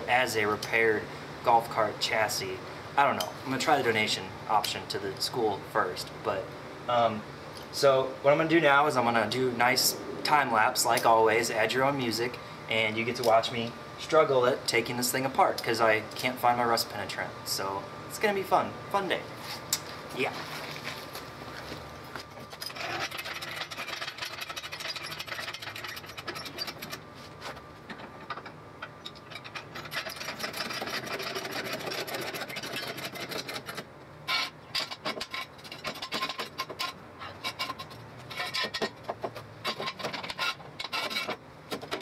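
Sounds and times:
scraping and clattering of hand work: 0:20.3 - 0:42.0.

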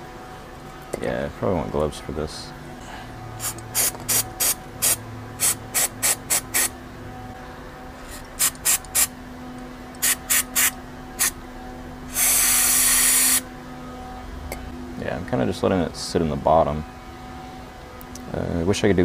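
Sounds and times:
aerosol spray hissing: 0:10.0 - 0:11.4, 0:12.1 - 0:13.4.

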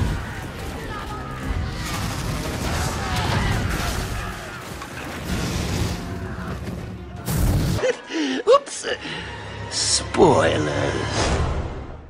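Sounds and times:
booms and crashes: 0:00.0 - 0:07.8
film soundtrack music: 0:00.0 - 0:12.0.

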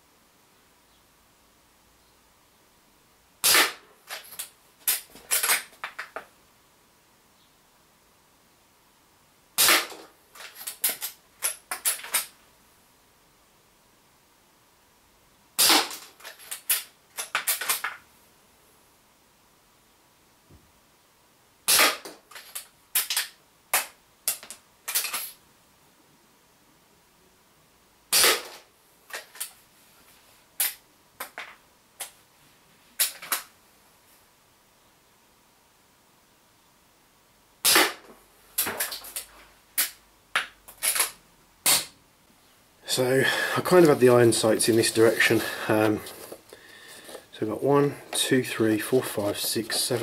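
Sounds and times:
air rifle shot: 0:03.4 - 0:03.8, 0:09.6 - 0:10.0, 0:15.6 - 0:16.0, 0:21.7 - 0:22.1, 0:28.1 - 0:28.6, 0:37.6 - 0:38.0.

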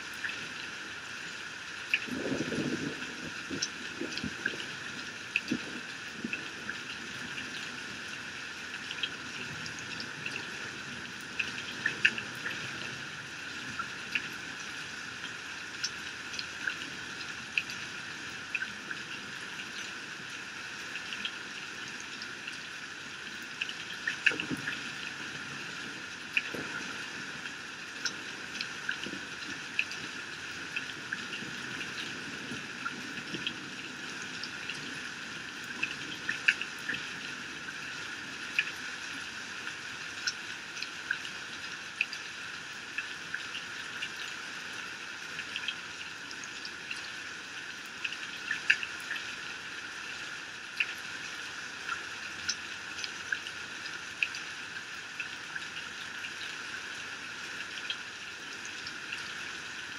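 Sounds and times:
heavy rain hissing: 0:02.1 - 0:04.5.

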